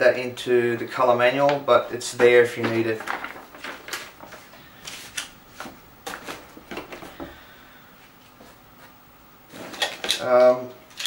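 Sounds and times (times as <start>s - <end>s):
paper and packaging rustling: 0.7s - 7.2s.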